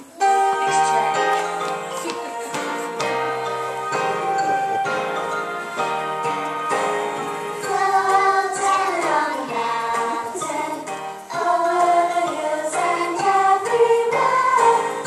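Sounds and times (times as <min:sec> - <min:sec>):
instrumental accompaniment: 0:00.0 - 0:15.0
children singing: 0:06.2 - 0:15.0.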